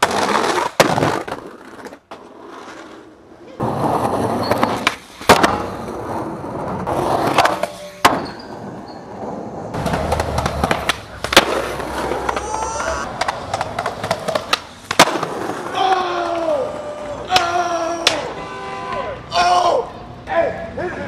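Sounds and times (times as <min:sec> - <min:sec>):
skateboard popping and landing: 0:00.0 - 0:16.5
skateboard wheels rolling on pavement: 0:00.0 - 0:18.3.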